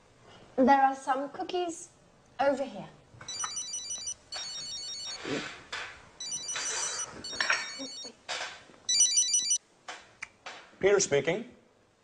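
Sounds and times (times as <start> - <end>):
telephone trilling ring: 3.3 - 5.2, 6.2 - 8.1, 8.9 - 9.6.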